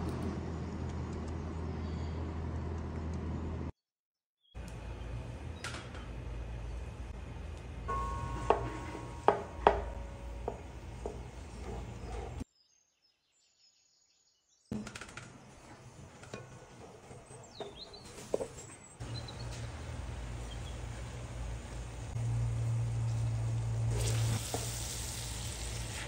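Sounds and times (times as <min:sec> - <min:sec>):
wooden spatula scraping pot: 0:10.5 - 0:12.4, 0:15.6 - 0:18.8
dough frying in butter: 0:23.4 - 0:26.0
butter sizzling: 0:23.6 - 0:26.0.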